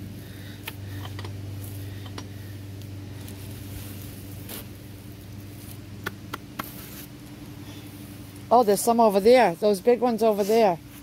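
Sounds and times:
low hum: 0.0s - 11.0s
hands rummaging through soil: 0.7s - 7.8s.

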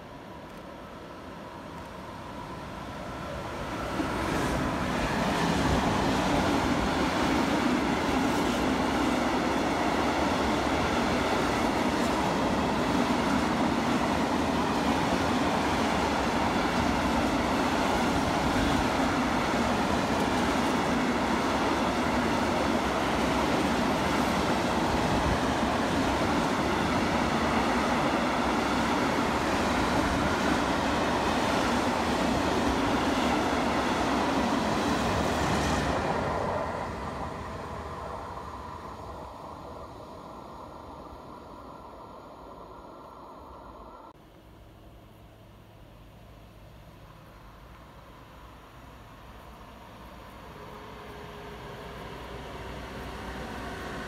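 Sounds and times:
train rumbling on rails: 0.0s - 54.0s.

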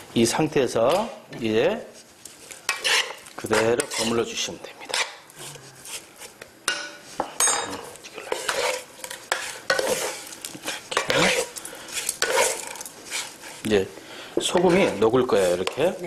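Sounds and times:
utensils scraping a frying pan: 2.3s - 7.0s, 7.8s - 13.8s, 14.4s - 16.0s.

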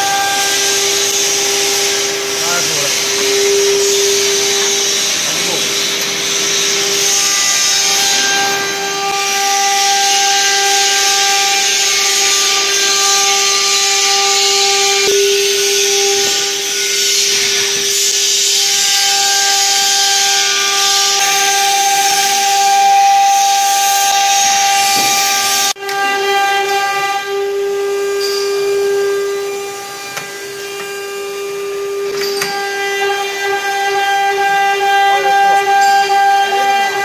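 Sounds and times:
high-speed motor whine: 0.0s - 26.1s.

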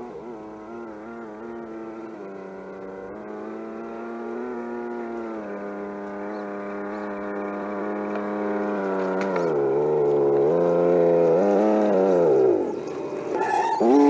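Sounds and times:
simulated buzzing engine sound: 0.0s - 14.0s.

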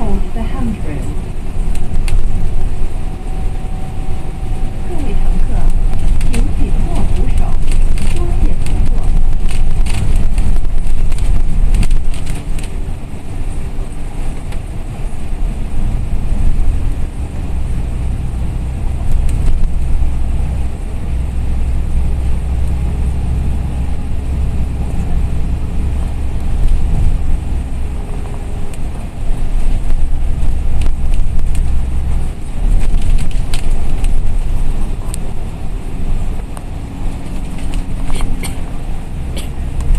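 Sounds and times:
bus engine drone: 0.0s - 39.9s
road noise: 0.0s - 39.9s.

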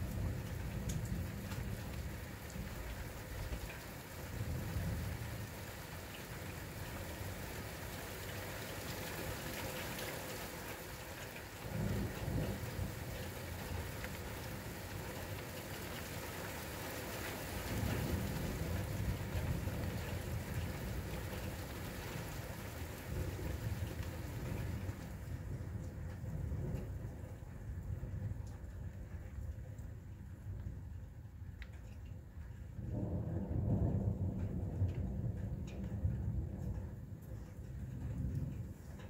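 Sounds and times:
steady rain: 0.0s - 39.0s
thunder rumbling: 22.6s - 31.0s, 32.7s - 39.0s.

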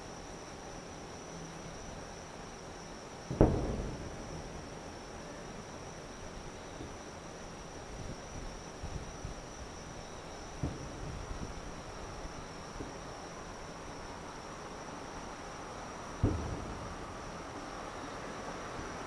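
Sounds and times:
night insects chirring: 0.0s - 19.0s
distant fireworks booms: 3.3s - 7.1s, 10.4s - 13.6s, 16.0s - 17.9s.

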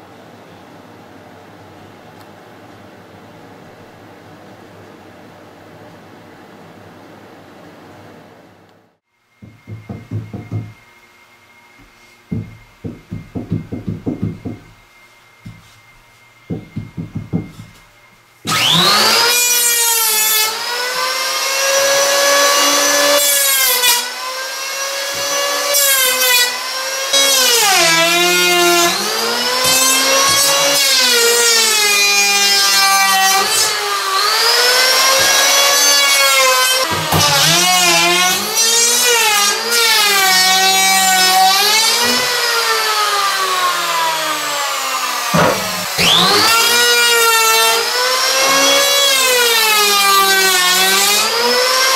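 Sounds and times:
knocking: 9.4s - 10.8s, 12.3s - 14.8s, 16.5s - 17.9s, 45.3s - 46.6s
disc power tool cutting wood: 18.5s - 51.9s.

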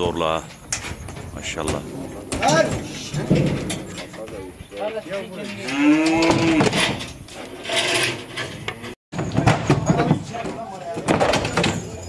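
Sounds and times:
cow mooing: 5.6s - 6.8s.

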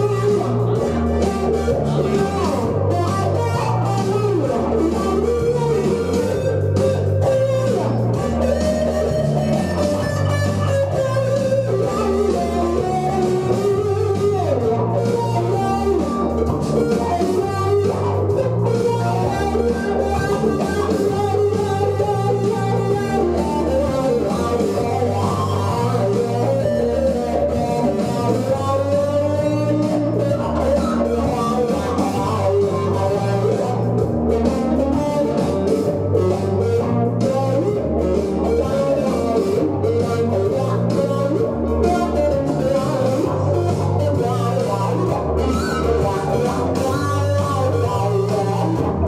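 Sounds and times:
electric guitar solo: 0.0s - 49.0s.

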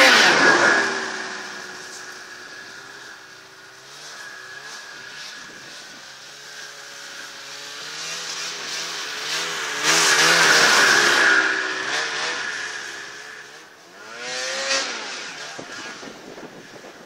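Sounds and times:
snowmobile engine running: 0.0s - 17.0s
track and snow rushing: 0.0s - 17.0s.

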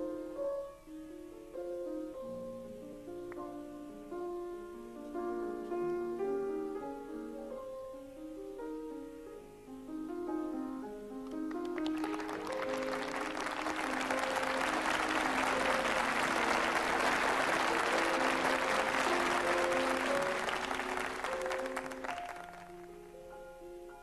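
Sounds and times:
light instrumental music: 0.0s - 24.0s
audience applauding: 11.5s - 22.9s.

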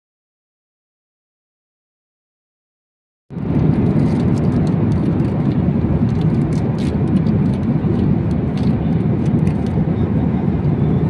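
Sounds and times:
airliner cabin rumble: 3.3s - 11.0s.

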